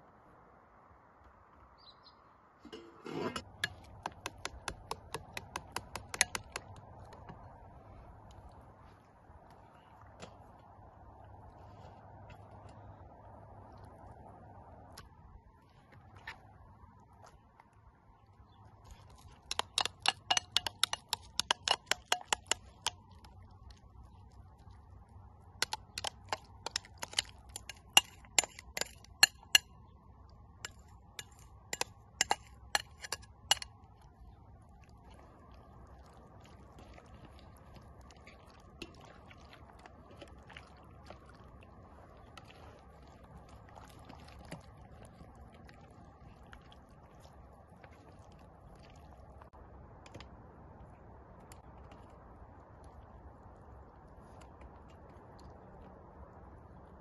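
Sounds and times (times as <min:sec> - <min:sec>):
hands squishing marinade into fish: 0:03.4 - 0:50.2
spoon clinking against glass bowl: 0:19.5 - 0:22.9.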